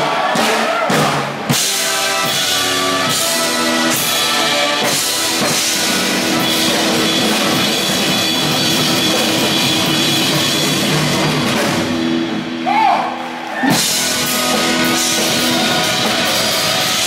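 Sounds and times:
drum kits playing: 0:00.0 - 0:17.0
big band horns holding chords: 0:01.4 - 0:12.6, 0:13.7 - 0:17.0.

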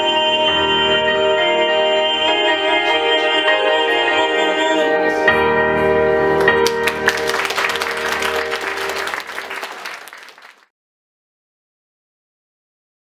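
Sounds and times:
audience applause: 0:06.4 - 0:10.7.

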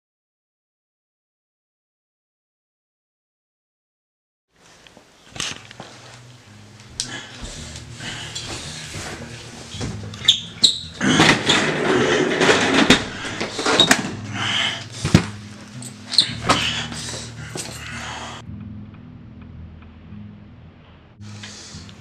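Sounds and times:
rustling and clatter: 0:11.0 - 0:14.2.

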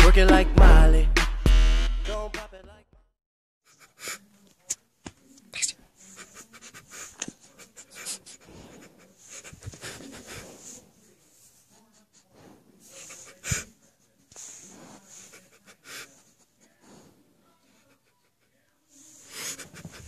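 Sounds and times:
dog sniffing: 0:05.4 - 0:20.0.

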